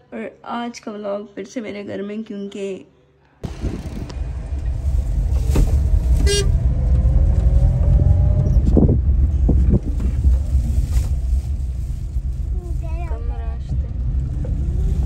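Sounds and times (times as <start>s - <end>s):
car engine and road rumble: 3.4s - 15.0s
car horn toot: 6.2s - 6.7s.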